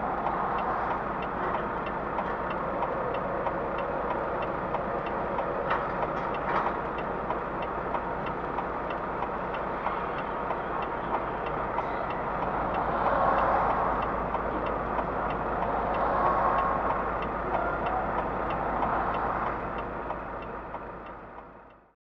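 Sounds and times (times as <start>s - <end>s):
regular ticking: 0.0s - 21.9s
truck engine rumble: 0.0s - 22.0s.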